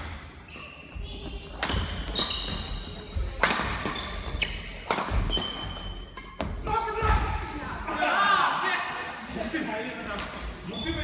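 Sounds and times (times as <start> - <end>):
shoes squeaking: 0.3 - 7.3
racket striking shuttlecock: 3.3 - 6.6.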